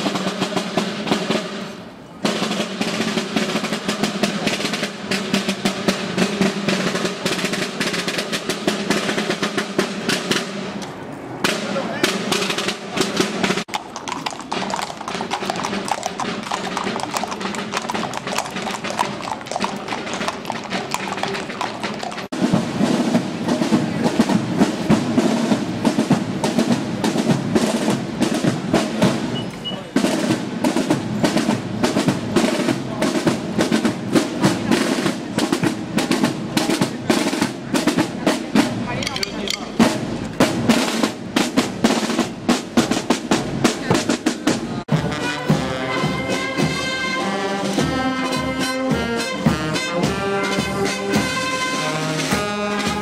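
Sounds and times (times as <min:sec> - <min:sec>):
brass instruments: 0:00.0 - 0:10.8, 0:30.0 - 0:53.0
marching band music: 0:00.0 - 0:53.0
snare drums: 0:00.0 - 0:53.0.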